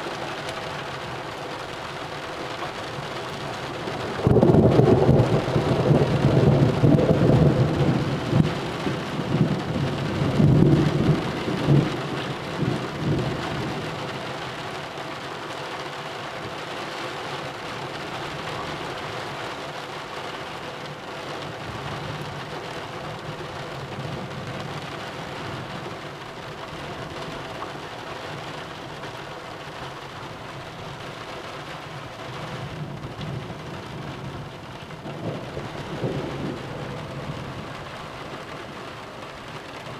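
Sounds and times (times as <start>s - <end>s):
steady rain: 0.0s - 39.9s
thunder rumbling: 2.9s - 14.2s, 32.4s - 39.9s.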